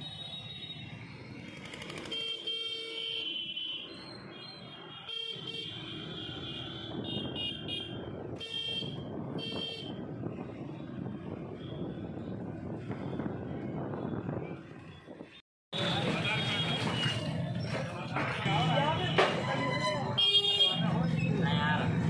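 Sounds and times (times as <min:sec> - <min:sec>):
scooters and motorbikes passing: 0:00.4 - 0:02.4
vehicle horns honking: 0:04.7 - 0:10.0, 0:19.8 - 0:20.8.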